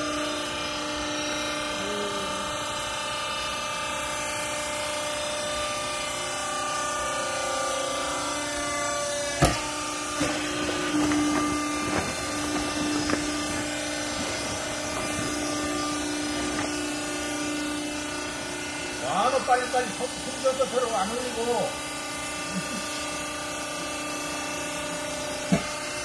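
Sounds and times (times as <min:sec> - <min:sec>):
hydraulic motor humming: 0:00.0 - 0:26.0
handling noises: 0:09.4 - 0:16.9.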